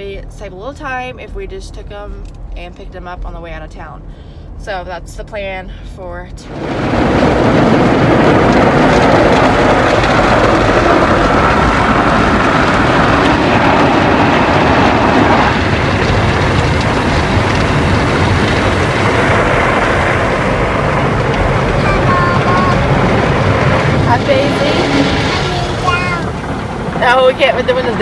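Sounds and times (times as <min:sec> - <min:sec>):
car cabin road noise: 0:12.4 - 0:28.0.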